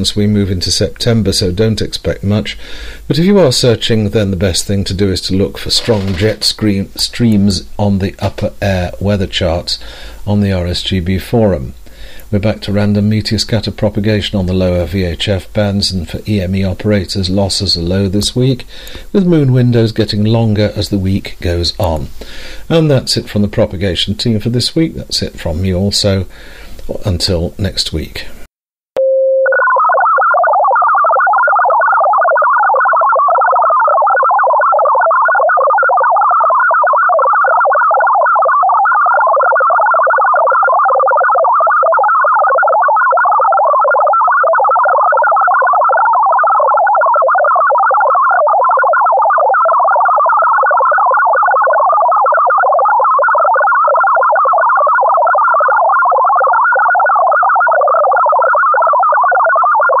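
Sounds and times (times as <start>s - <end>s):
warbling digital data tones: 5.7s - 6.7s, 29.4s - 60.0s.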